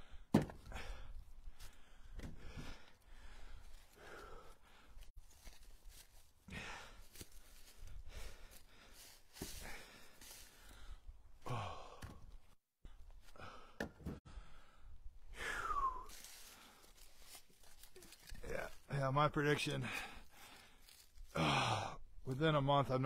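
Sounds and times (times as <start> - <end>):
man sighing and breathing hard: 0.0 - 5.0, 6.4 - 16.9, 19.8 - 22.2
firewood knocking on truck bed: 0.3 - 0.7.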